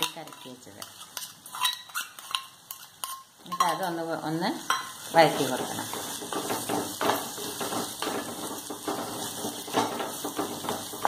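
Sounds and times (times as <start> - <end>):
wooden spatula scraping clay pot: 0.0 - 3.8
frying sizzle: 0.0 - 11.0.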